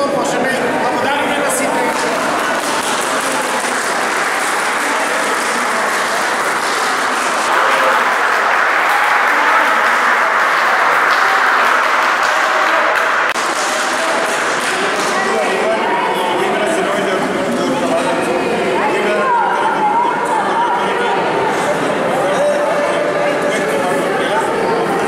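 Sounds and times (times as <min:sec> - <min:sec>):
crowd applauding: 0:01.4 - 0:16.0.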